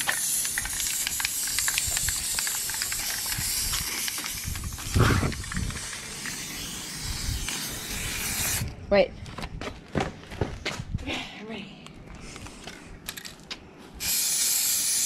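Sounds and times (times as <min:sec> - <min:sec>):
aerosol spray can hissing: 0:00.0 - 0:08.6, 0:14.0 - 0:15.0.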